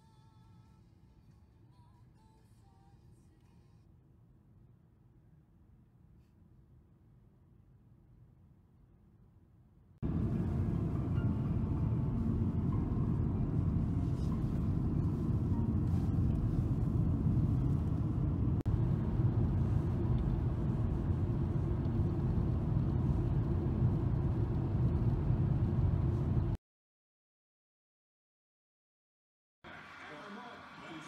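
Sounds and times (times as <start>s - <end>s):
car interior road rumble: 10.0s - 26.6s.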